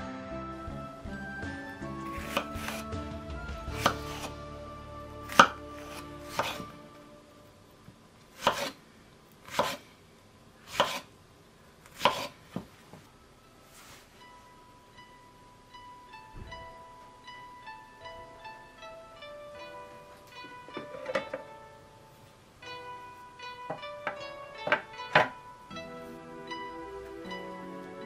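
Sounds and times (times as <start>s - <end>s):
soft background music: 0.0s - 7.9s, 12.8s - 28.0s
knife cutting fruit on wooden board: 2.1s - 3.0s, 3.6s - 4.4s, 5.2s - 6.8s, 8.3s - 8.8s, 9.4s - 10.0s, 10.7s - 11.1s, 11.8s - 12.7s.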